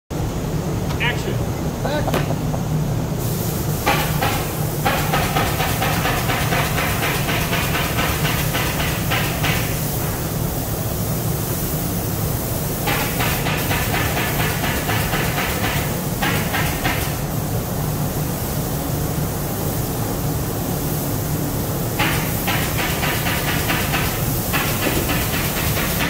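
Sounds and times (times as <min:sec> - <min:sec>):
factory machinery humming: 0:00.1 - 0:12.7.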